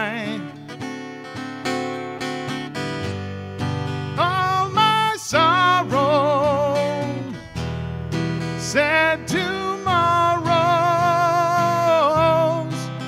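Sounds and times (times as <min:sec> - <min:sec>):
man singing: 0:00.0 - 0:00.8, 0:04.1 - 0:07.6, 0:08.5 - 0:13.0
acoustic guitar strumming: 0:00.0 - 0:13.0.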